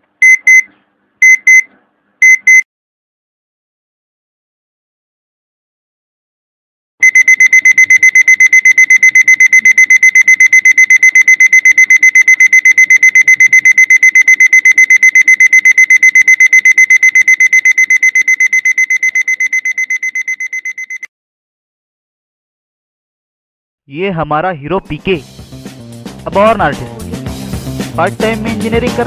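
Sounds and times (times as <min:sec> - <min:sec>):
alarm clock beeping: 0:00.2 - 0:02.6, 0:07.0 - 0:21.1.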